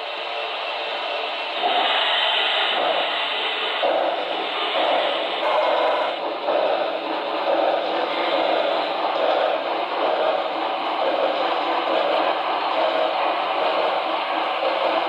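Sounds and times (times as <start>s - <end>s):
steam hiss: 0.0s - 15.0s
steam locomotive exhaust chuffs: 0.0s - 15.0s.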